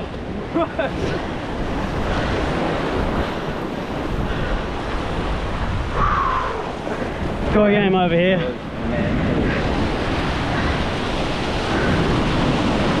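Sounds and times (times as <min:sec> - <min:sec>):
ocean surf washing over rocks: 0:00.0 - 0:13.0
wind buffeting microphone: 0:00.0 - 0:13.0.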